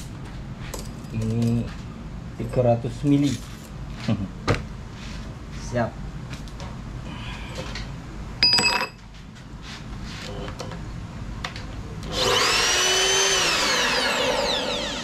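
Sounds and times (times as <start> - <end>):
sharp metallic ring: 8.4 - 9.0
machine motor whine: 12.1 - 15.0.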